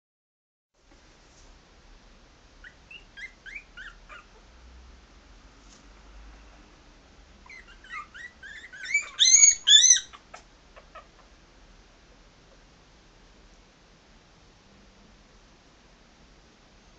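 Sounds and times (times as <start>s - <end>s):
puppies whimpering: 2.6s - 4.4s, 7.4s - 11.3s
puppy loud cries: 7.4s - 11.3s.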